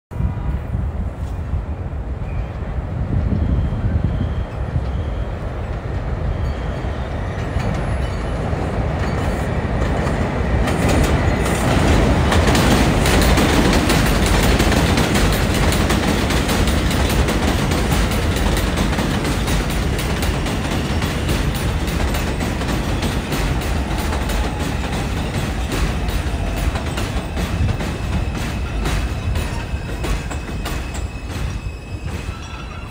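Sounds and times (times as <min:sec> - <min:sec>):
train wheels rumbling on steel track: 0:00.1 - 0:32.9
wheels clicking over rail joints: 0:07.4 - 0:32.9.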